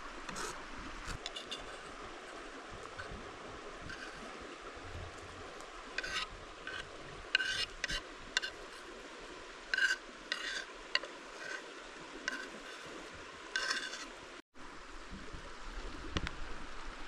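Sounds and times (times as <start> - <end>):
knife scraping cutting board: 0.3 - 1.8, 3.9 - 4.3, 6.0 - 8.8, 9.7 - 11.7, 12.3 - 13.0, 13.6 - 14.1.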